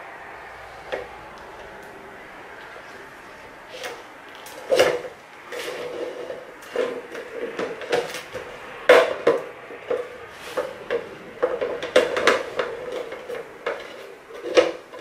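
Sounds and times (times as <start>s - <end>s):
tin cans knocking and clinking: 3.8s - 15.0s.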